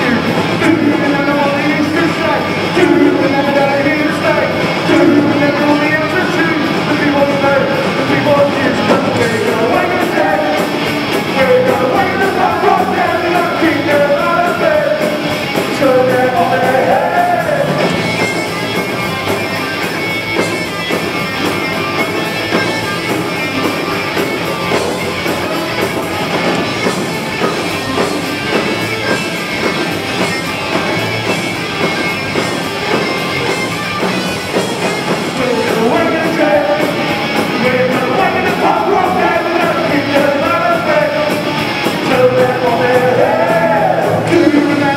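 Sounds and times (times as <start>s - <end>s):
person singing: 0.0s - 18.1s, 34.8s - 44.9s
punk rock band playing: 0.0s - 44.9s.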